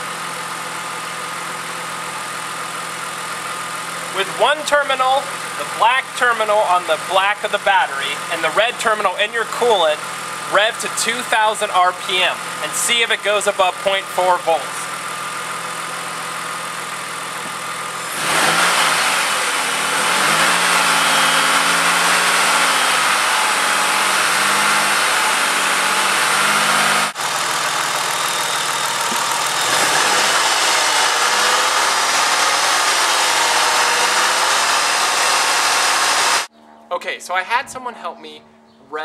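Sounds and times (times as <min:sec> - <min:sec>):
car engine idling and revving: 0:00.0 - 0:36.5.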